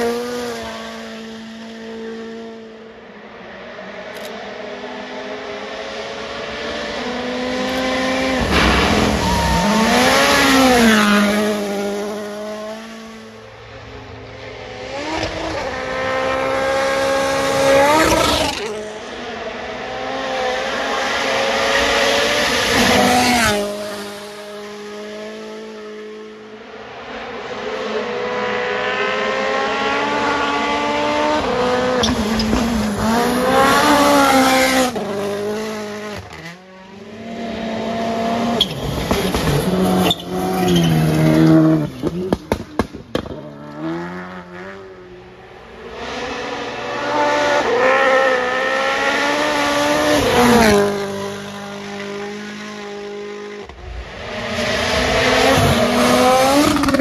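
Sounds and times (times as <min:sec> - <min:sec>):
rally cars passing at full throttle: 0:00.0 - 0:57.0
sharp cracks: 0:08.4 - 0:10.9.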